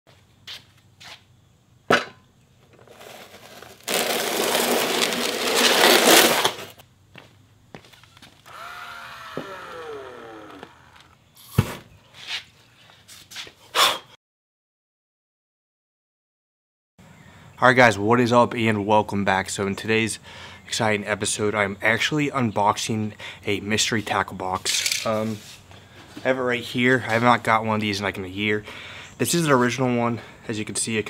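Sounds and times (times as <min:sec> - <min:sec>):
ice auger grinding cardboard: 0:02.8 - 0:06.8, 0:08.5 - 0:11.1
cordless drill motor whining: 0:08.4 - 0:11.2.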